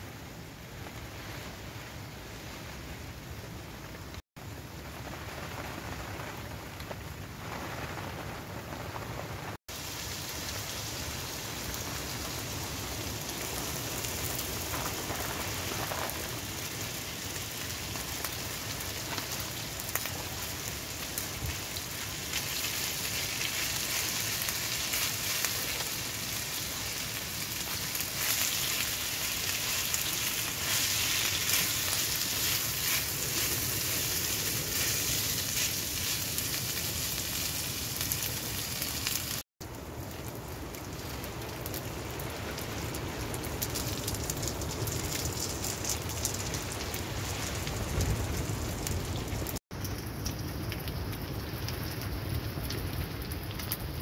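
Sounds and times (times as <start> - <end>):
food sizzling in oil in a pan: 9.6 - 39.4.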